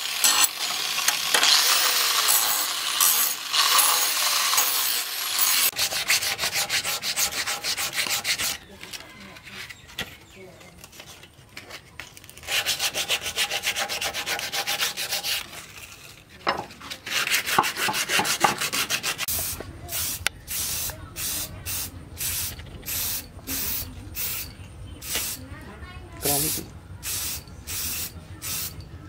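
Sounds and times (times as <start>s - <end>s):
sandpaper rubbing on wood: 3.6s - 8.6s, 12.4s - 16.0s, 16.9s - 21.5s
hissing spray bursts: 19.2s - 24.4s, 25.0s - 25.5s, 26.2s - 28.8s.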